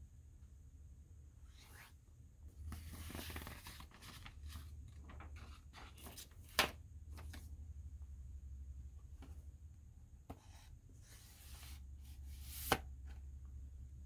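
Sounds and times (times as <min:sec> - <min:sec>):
paper sleeve rustling: 0:02.7 - 0:06.5.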